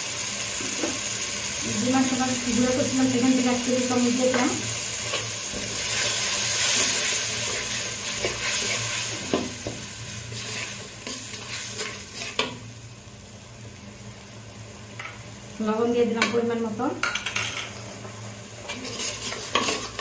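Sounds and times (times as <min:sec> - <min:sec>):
paste sizzling in hot oil: 0:00.0 - 0:15.6, 0:17.1 - 0:20.0
metal spoon scraping pot: 0:18.7 - 0:20.0.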